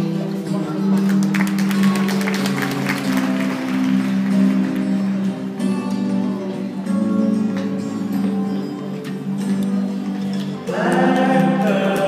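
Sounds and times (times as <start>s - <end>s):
guitar music: 0.0s - 12.0s
audience applause: 0.9s - 5.4s.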